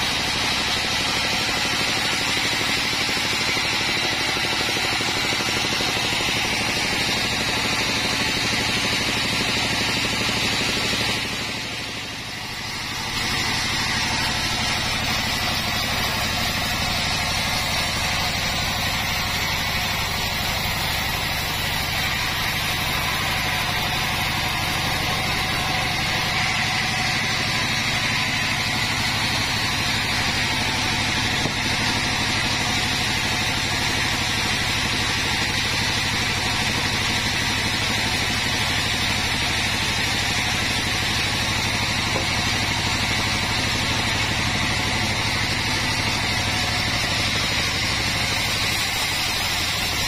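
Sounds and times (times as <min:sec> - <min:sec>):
band sawmill running: 0:00.0 - 0:50.0.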